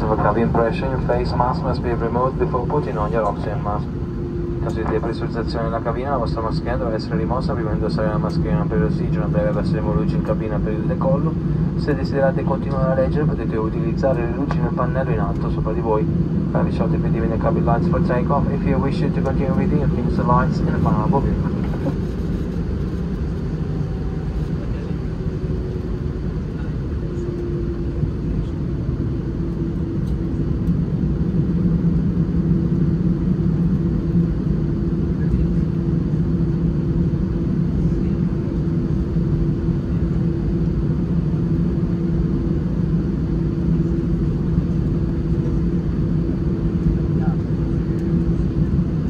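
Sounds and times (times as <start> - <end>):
jet engines rumbling in cabin: 0.0 - 49.0.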